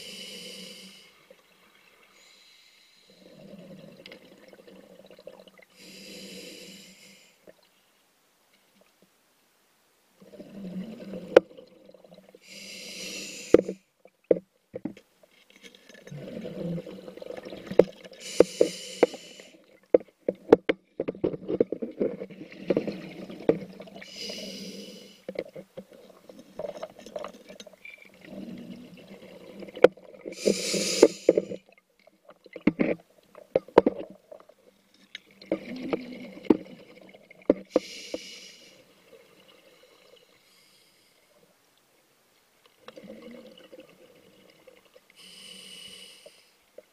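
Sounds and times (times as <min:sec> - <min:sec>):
regulator inhalation hiss: 0:00.0 - 0:01.2, 0:05.8 - 0:07.4, 0:12.4 - 0:13.8, 0:18.2 - 0:19.6, 0:24.1 - 0:25.3, 0:30.4 - 0:31.6, 0:37.7 - 0:38.8, 0:45.2 - 0:46.6
exhaled bubbles rumbling: 0:16.1 - 0:18.1.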